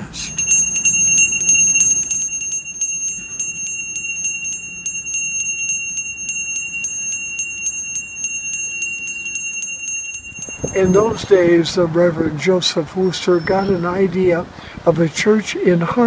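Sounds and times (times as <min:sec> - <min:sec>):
hand bell ringing: 0:00.0 - 0:11.3.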